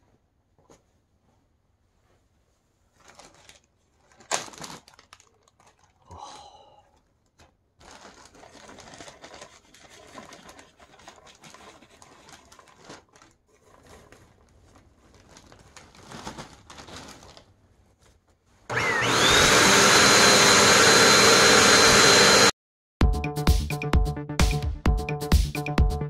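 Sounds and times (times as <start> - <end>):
plastic bag crinkling: 2.9 - 6.1, 7.3 - 18.2
vacuum cleaner motor whine: 18.7 - 22.5.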